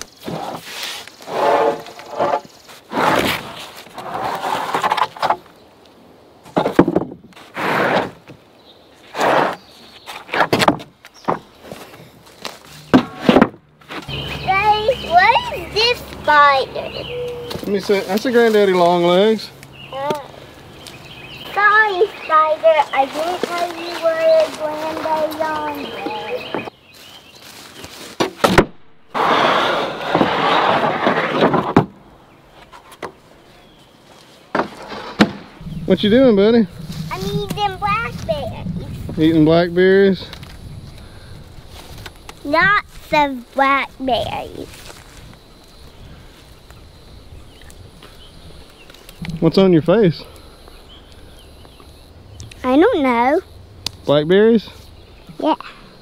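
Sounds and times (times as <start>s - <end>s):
wooden boards scraping: 0.1s - 5.5s, 6.4s - 8.4s, 9.0s - 18.9s, 28.0s - 33.2s, 34.5s - 39.3s
wooden boards knocking together: 6.5s - 7.3s, 10.2s - 11.8s, 12.9s - 14.0s, 30.0s - 32.0s.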